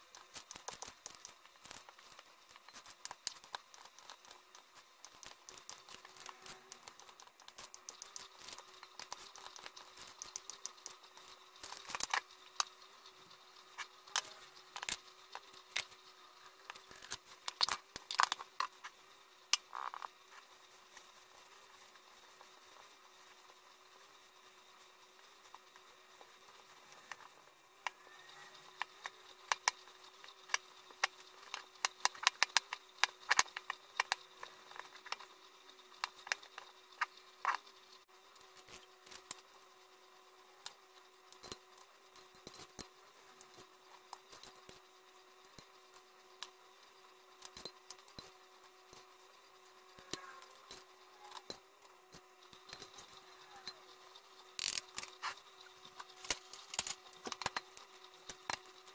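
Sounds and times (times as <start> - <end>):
faint hum: 0.0 - 58.9.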